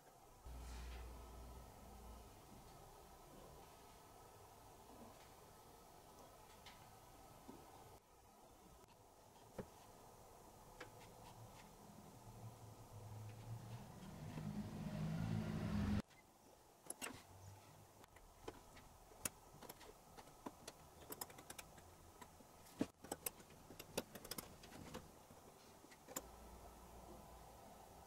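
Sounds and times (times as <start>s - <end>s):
rising mechanical hum: 11.8s - 16.0s.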